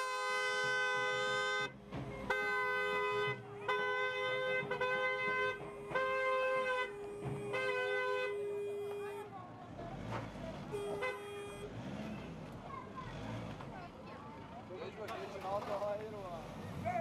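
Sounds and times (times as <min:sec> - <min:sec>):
two-tone car horn blasts: 0:00.0 - 0:09.4, 0:10.7 - 0:11.8.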